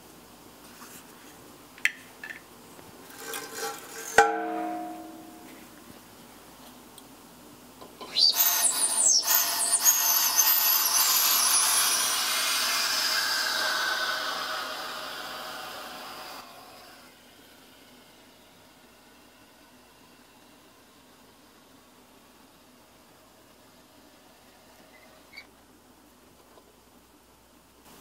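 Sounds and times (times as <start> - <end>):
metallic clank of hose: 3.2 - 5.6.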